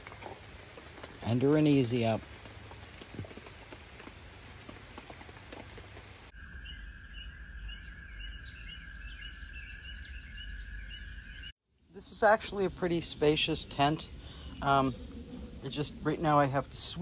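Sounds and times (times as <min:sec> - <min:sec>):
rain pattering on a canopy: 0:00.0 - 0:06.3
birds chirping: 0:00.0 - 0:17.0.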